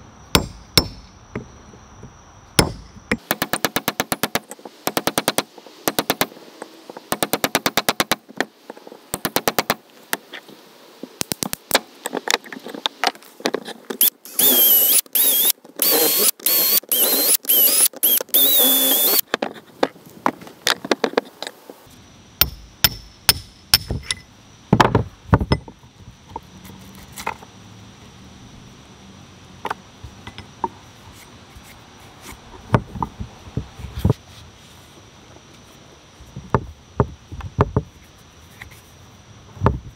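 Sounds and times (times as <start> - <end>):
cordless drill boring into wood: 14.0 - 19.2.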